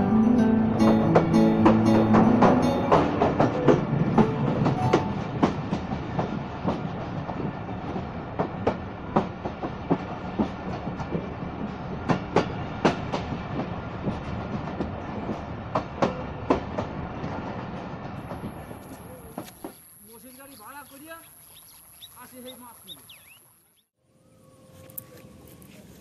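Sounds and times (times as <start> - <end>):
train rumble: 0.0 - 20.8
train wheels clacking: 0.8 - 19.8.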